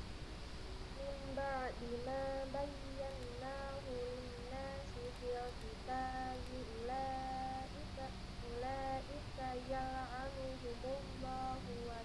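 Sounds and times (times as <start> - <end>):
woman chanting: 1.0 - 12.0.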